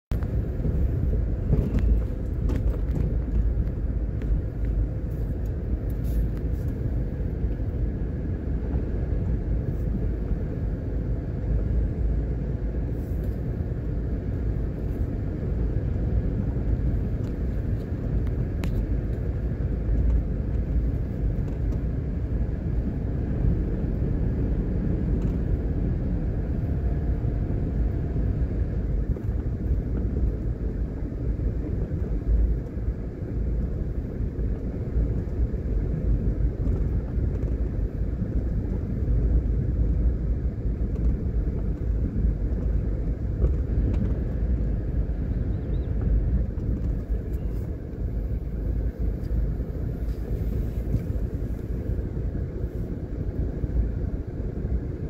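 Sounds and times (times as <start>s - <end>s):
car driving slowly: 0.1s - 55.0s.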